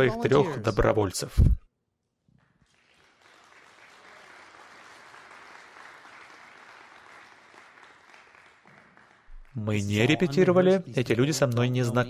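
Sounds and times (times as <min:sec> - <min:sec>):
faint audience applause: 0:02.4 - 0:10.4.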